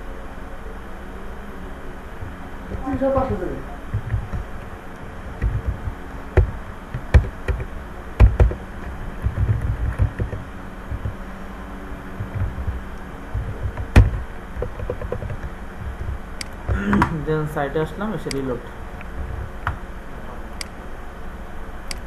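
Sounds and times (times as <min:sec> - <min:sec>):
steady low hum: 0:00.0 - 0:22.0
keyboard keystrokes: 0:05.4 - 0:08.6, 0:09.2 - 0:11.2, 0:13.4 - 0:17.2.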